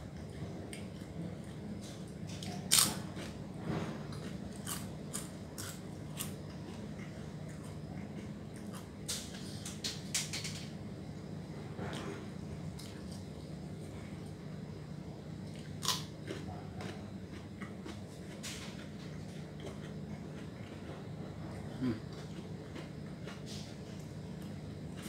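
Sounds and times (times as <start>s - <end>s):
chewing crisp food: 0.2s - 9.3s, 15.4s - 25.0s.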